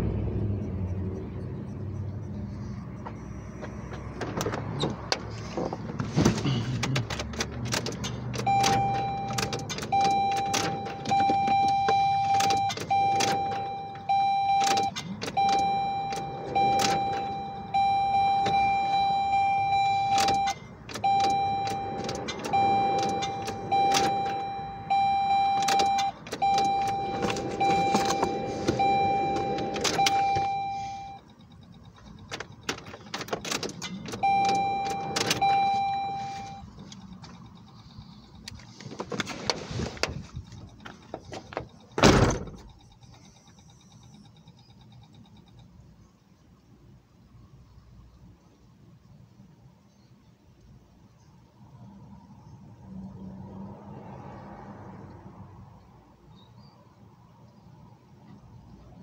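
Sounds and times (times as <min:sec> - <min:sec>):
ignition key clicks: 0:06.8 - 0:37.7
car warning chime dinging: 0:07.7 - 0:38.6.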